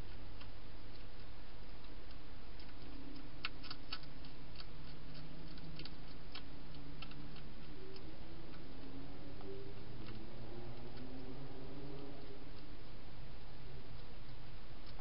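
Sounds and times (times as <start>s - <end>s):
hedgehog crunching dry food: 0.1s - 8.8s.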